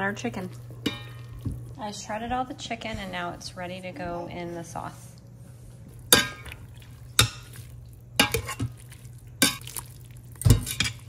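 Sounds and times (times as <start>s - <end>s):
metal spoon scraping a pot: 8.2s - 8.7s, 10.6s - 11.0s.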